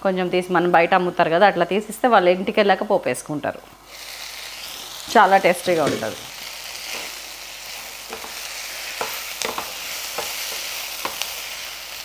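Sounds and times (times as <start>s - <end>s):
leaves sizzling in a pan: 3.7s - 12.0s
spatula knocking and scraping pan: 8.1s - 8.4s, 9.0s - 11.4s.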